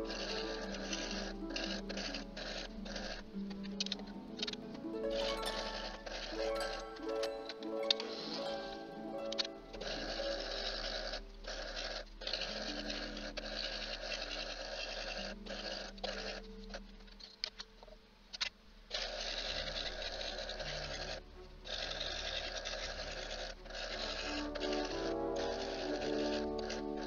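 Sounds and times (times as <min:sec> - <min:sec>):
soft held musical notes: 0:00.0 - 0:14.0
scroll saw buzzing: 0:00.0 - 0:16.8, 0:18.9 - 0:27.0.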